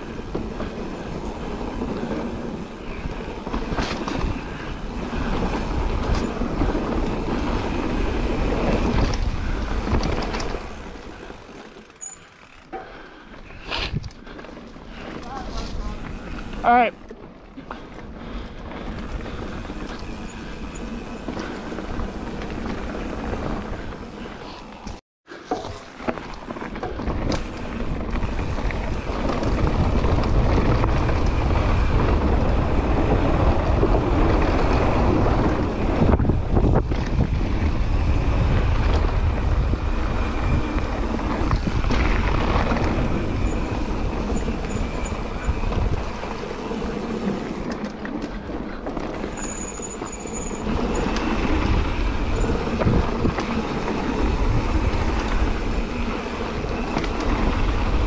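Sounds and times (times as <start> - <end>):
wind rushing over microphone: 0.0 - 11.3, 26.9 - 47.7, 50.5 - 58.0
bike rattling over ground: 0.0 - 58.0
bike tyres rolling: 0.0 - 58.0.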